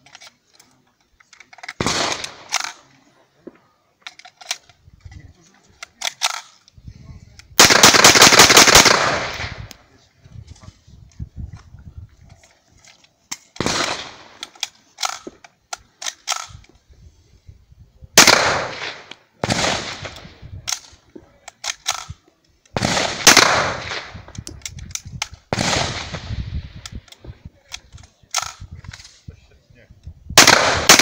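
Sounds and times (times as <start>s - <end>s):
submachine gun shots with echo: 1.8s - 2.7s, 7.6s - 9.6s, 13.6s - 14.4s, 18.2s - 20.2s, 22.8s - 24.2s, 25.5s - 26.3s, 30.4s - 31.0s.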